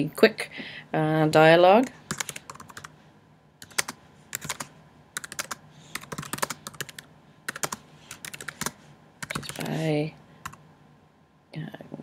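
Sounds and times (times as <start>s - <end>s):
keyboard typing: 2.1s - 2.9s, 3.6s - 9.8s.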